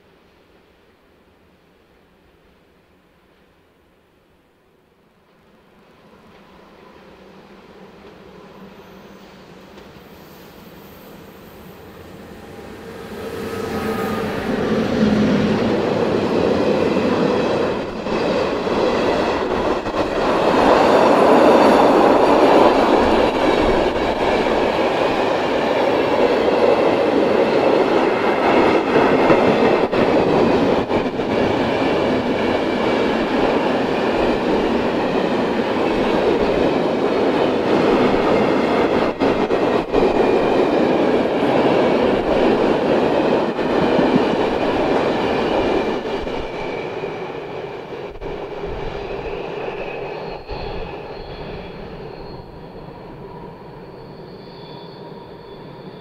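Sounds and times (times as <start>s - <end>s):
train wheels rumbling on rail: 7.7s - 54.4s
high-pitched wheel squeal: 49.2s - 56.0s.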